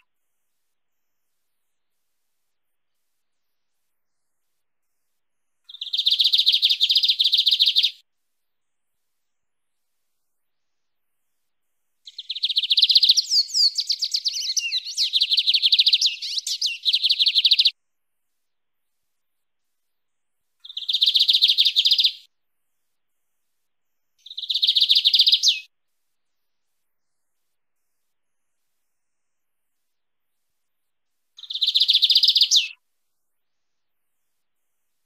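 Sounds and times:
bird singing high trills: 12.1s - 17.7s, 24.2s - 25.7s, 31.4s - 32.8s.

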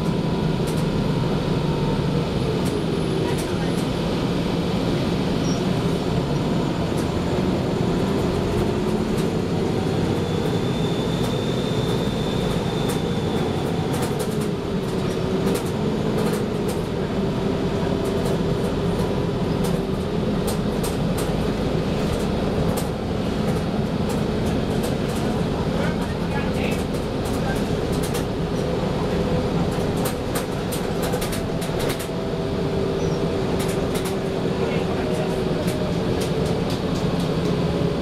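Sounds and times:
diesel engine droning: 0.0s - 38.0s
body clicks and rattles: 12.9s - 17.0s, 18.0s - 28.8s, 29.6s - 32.2s, 33.4s - 34.2s.

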